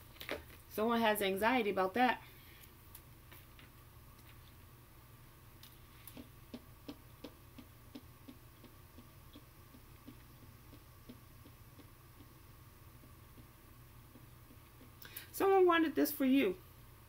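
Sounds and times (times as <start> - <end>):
faint regular ticking: 5.6 - 15.4.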